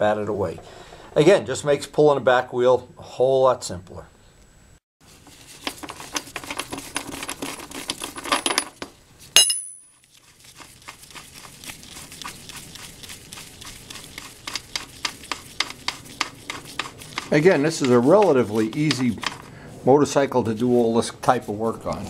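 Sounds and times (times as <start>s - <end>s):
loud ringing metal clink: 9.4s - 9.9s.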